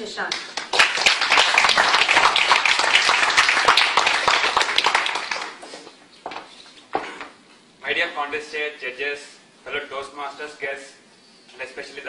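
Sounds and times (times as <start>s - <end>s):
audience applauding: 0.3s - 5.9s.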